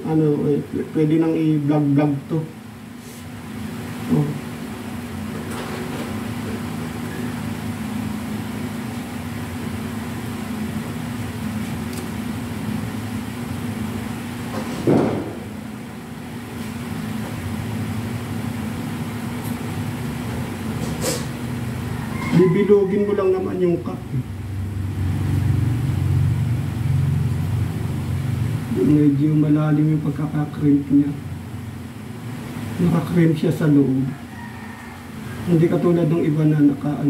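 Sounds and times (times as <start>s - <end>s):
low machine hum: 0.0s - 37.0s
tool clunk: 14.5s - 15.4s.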